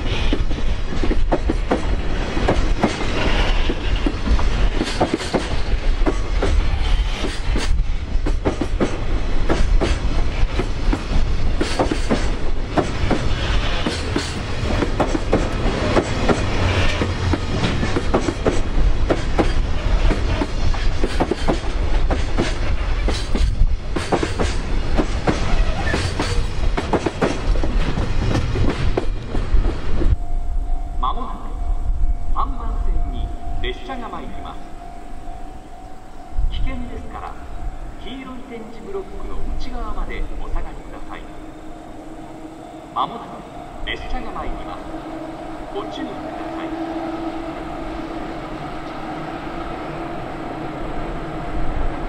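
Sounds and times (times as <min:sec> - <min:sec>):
train wheels clicking over joints: 0:00.0 - 0:30.2
wind buffeting microphone: 0:00.0 - 0:33.7
freight train rumble: 0:00.0 - 0:52.0.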